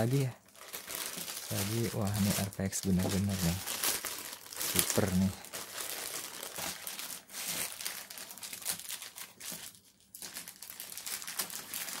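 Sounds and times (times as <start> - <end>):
plastic bag crinkling: 0.0 - 12.0.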